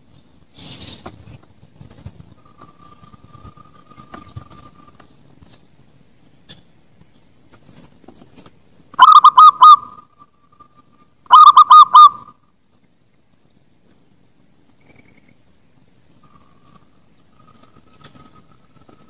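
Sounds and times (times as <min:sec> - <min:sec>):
dove cooing: 0:09.0 - 0:10.2, 0:11.3 - 0:12.3.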